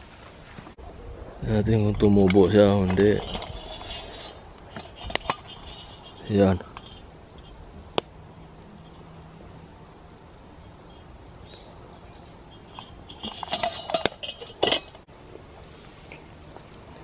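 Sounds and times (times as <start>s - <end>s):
pot lid clinking on rim: 12.6s - 15.0s.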